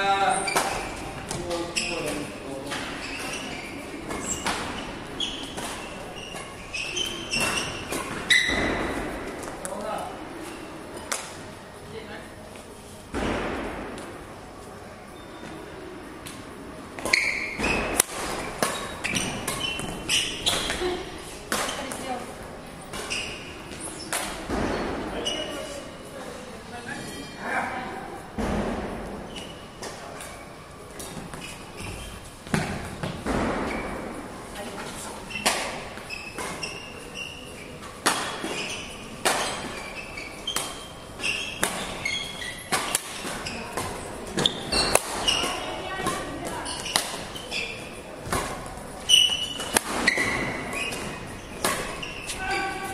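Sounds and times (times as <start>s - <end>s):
shoes squeaking on court floor: 0.0s - 9.8s, 14.7s - 16.4s, 17.0s - 26.0s, 26.7s - 27.7s, 29.1s - 52.9s
rackets striking shuttlecock: 40.5s - 47.3s, 48.2s - 52.4s.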